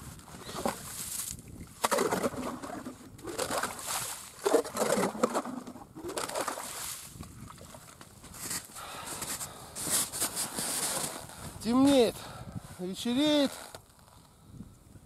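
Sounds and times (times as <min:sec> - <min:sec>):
ice auger scraping ice chips: 0:00.3 - 0:07.1.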